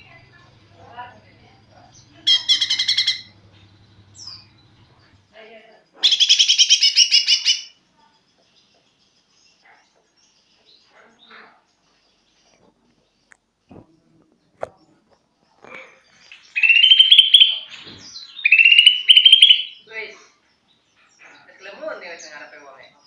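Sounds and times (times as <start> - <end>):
bird chattering high notes: 2.1 - 3.4, 16.6 - 17.7, 18.4 - 19.9.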